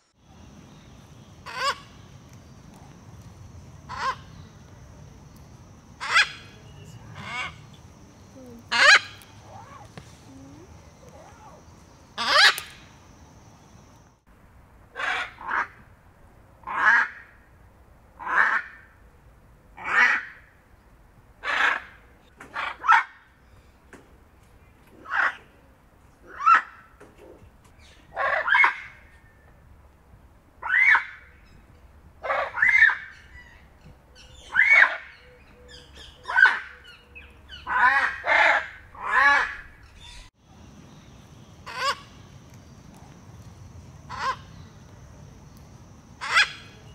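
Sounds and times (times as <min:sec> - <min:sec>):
macaws squawking: 0:01.4 - 0:01.9, 0:03.9 - 0:04.3, 0:06.0 - 0:07.7, 0:08.7 - 0:09.9, 0:12.2 - 0:12.8, 0:21.4 - 0:21.9, 0:34.2 - 0:40.2, 0:41.6 - 0:42.1, 0:44.1 - 0:44.5, 0:46.2 - 0:46.8
macaw squawking: 0:01.5 - 0:01.9, 0:03.9 - 0:04.3, 0:06.0 - 0:06.6, 0:08.7 - 0:09.9, 0:12.2 - 0:12.8, 0:41.7 - 0:42.1, 0:44.1 - 0:44.5, 0:46.2 - 0:46.8.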